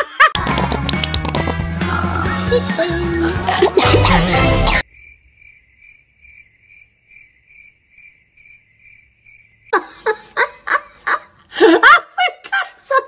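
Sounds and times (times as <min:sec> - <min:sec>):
loud music: 0:00.4 - 0:04.8
cricket chirping: 0:04.8 - 0:10.5.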